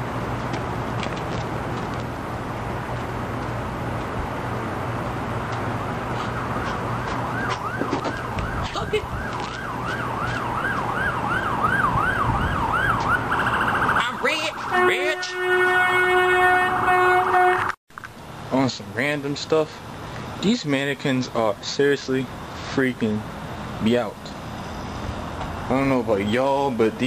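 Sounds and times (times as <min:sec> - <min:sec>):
traffic noise: 0:00.0 - 0:27.0
emergency vehicle siren wailing: 0:05.6 - 0:17.8
steady horn note: 0:14.6 - 0:17.8.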